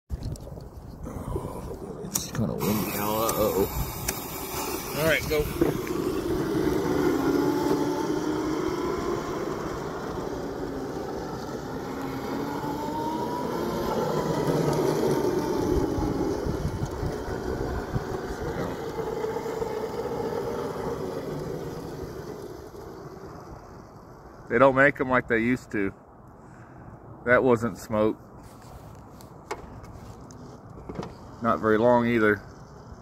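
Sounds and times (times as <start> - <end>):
wind buffeting microphone: 0.1 - 24.5
small wheels rumbling on asphalt: 0.1 - 25.0, 28.6 - 33.0
electric motor whining: 2.1 - 24.4.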